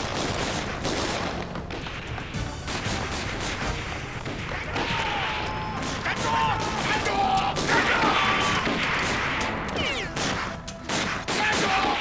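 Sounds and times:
music: 0.0 - 12.0
rapid gunfire: 0.0 - 12.0.

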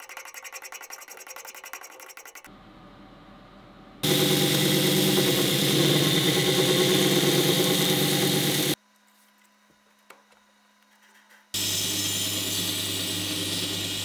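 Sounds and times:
belt grinder grinding metal: 4.0 - 8.8, 11.6 - 14.0.

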